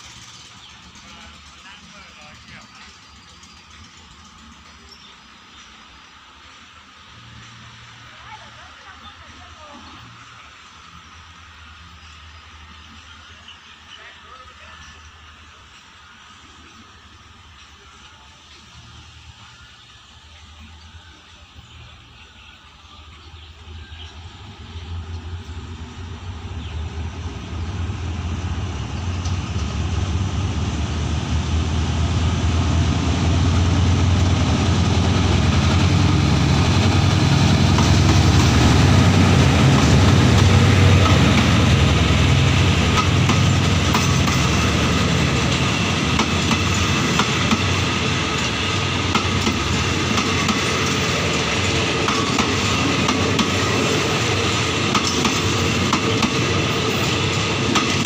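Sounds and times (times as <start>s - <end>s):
train wheels clacking over rail joints: 0.0s - 5.7s, 33.5s - 58.0s
locomotive engine drone: 0.0s - 58.0s.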